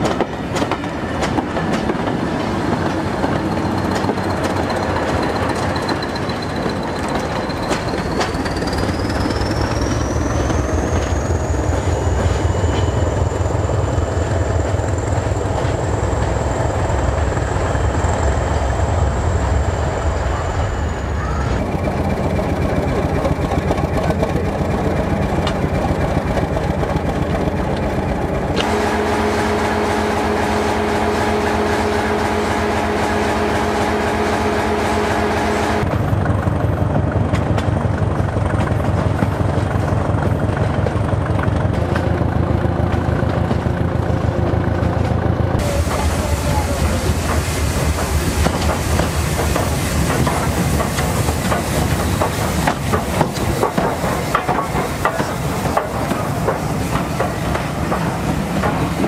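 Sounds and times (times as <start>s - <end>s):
train coaches clattering over rails: 0.0s - 59.0s
diesel engine running close up: 45.0s - 49.2s.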